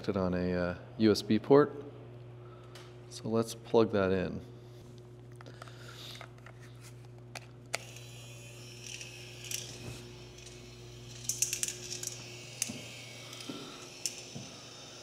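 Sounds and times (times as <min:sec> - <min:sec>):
low hum: 0:04.5 - 0:15.0
marble machine balls rattling: 0:08.8 - 0:14.4.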